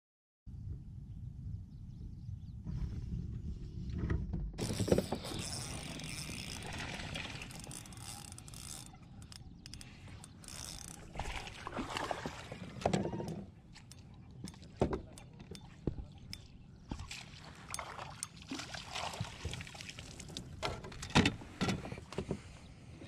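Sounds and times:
fishing reel whirring and clicking: 4.6 - 11.4.

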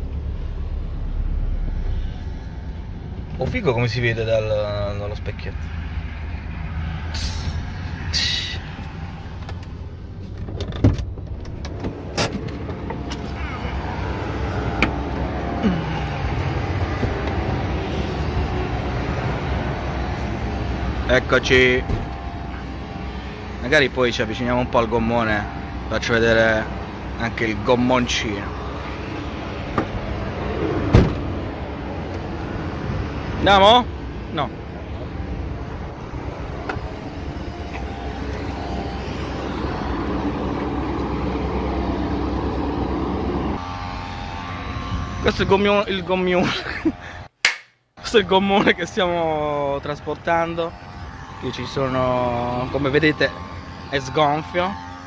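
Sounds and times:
truck engine and road rumble: 0.0 - 55.0
sharp click: 47.4 - 47.8.

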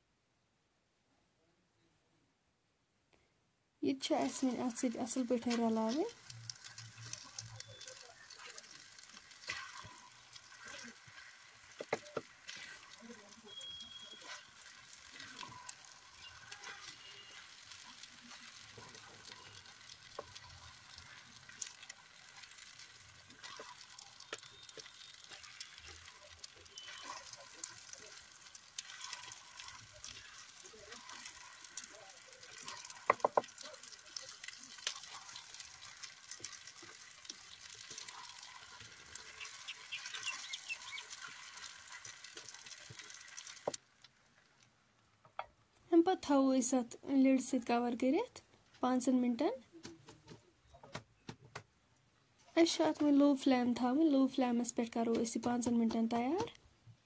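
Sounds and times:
faint sizzle: 3.2 - 50.8, 52.0 - 57.0
spatula scraping a pan: 5.5 - 43.7.

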